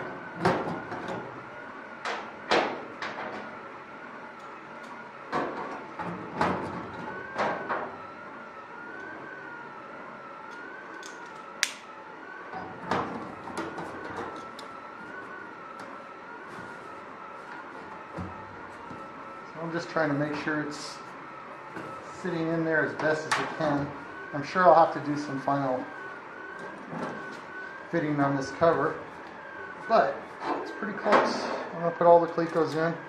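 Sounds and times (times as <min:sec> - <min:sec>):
sharp metallic clicks and snaps: 0:10.5 - 0:11.9.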